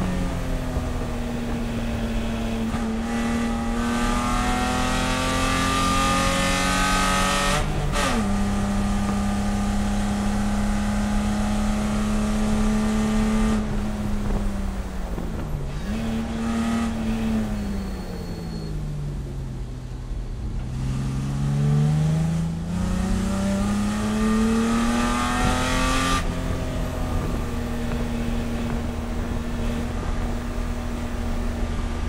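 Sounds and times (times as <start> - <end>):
race car engine under load: 0.0 - 32.0.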